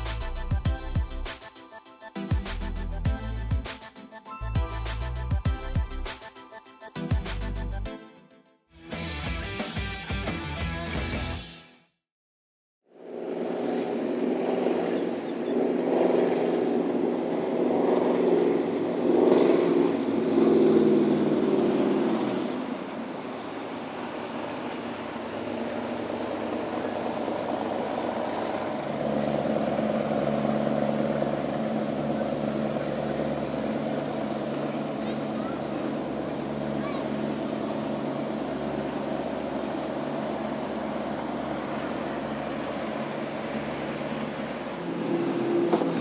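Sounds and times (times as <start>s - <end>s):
motorboat engines running: 13.2s - 46.0s.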